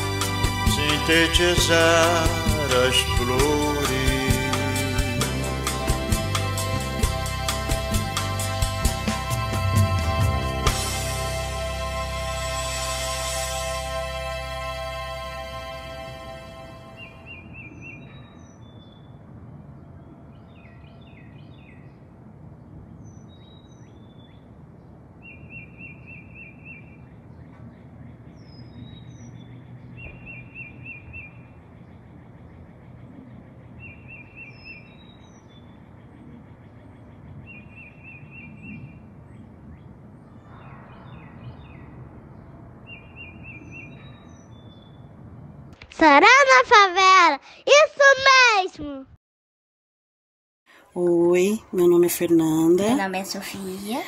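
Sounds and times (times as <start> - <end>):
low outdoor rumble: 0.0 - 17.3, 35.1 - 46.2
high bird chirps: 28.4 - 31.6, 40.3 - 45.1.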